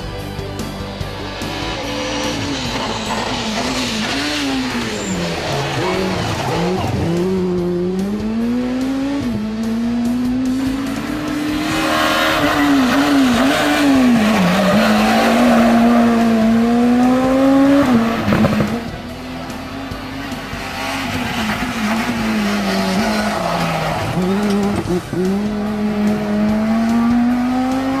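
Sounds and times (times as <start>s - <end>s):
rally car engine revving hard: 1.0s - 28.0s.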